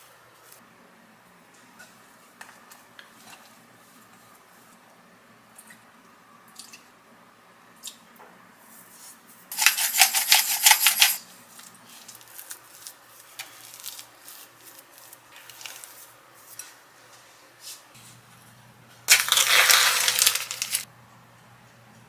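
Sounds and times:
spoon stirring in glass bowl: 9.5 - 11.2
gritty crackle of salt pouring: 19.1 - 20.9.

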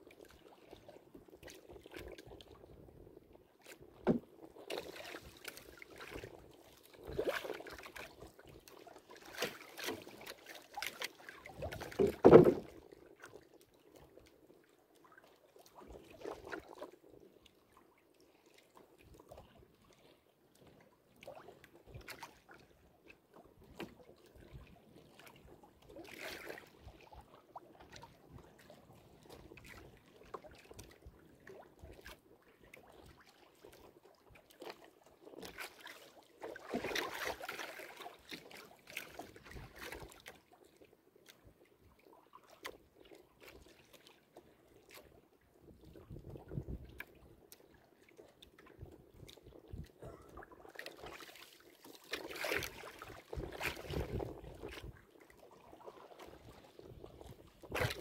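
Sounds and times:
water lapping against hull: 0.0 - 58.0
paddle strokes: 0.1 - 58.0
rush of water: 9.2 - 12.7, 55.8 - 58.0.

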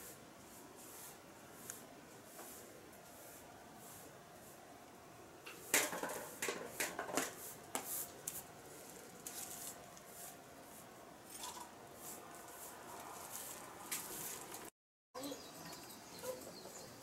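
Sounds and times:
short sharp gardening strokes: 5.5 - 14.7.

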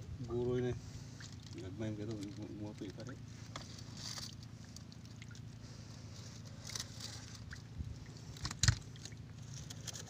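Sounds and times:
boat engine humming: 0.0 - 10.0
clicks and rustles of net handling: 1.2 - 5.5, 6.2 - 10.0.

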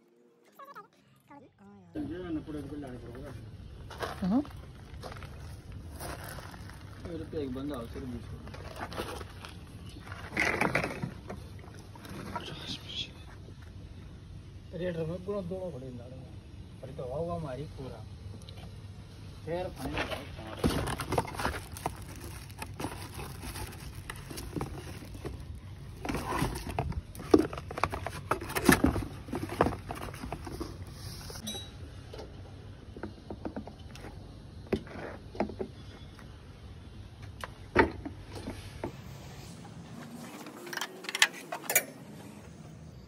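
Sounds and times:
plastic buckets clicking and knocking: 19.9 - 30.9.

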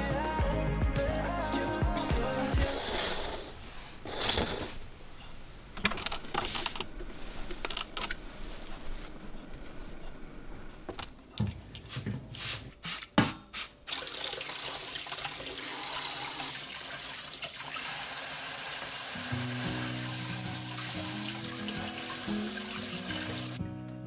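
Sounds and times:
vegetables rinsed by hand: 11.5 - 23.6
soft background music: 19.1 - 24.0.

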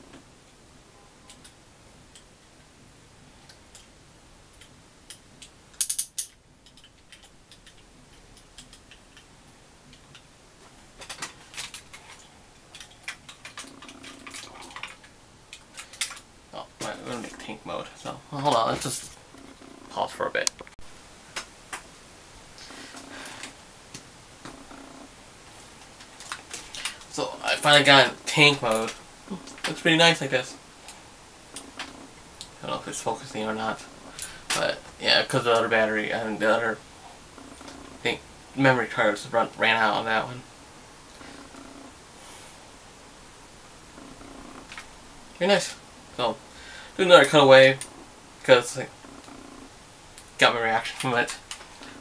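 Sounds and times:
plastic toy parts clicking: 4.6 - 9.3, 11.0 - 16.2
soft breathing: 22.6 - 23.6, 33.9 - 34.5, 41.2 - 42.8, 46.4 - 47.0.

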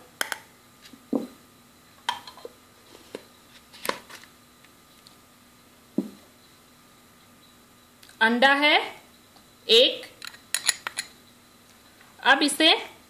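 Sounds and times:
utensils and dishes clinking: 10.2 - 11.2.

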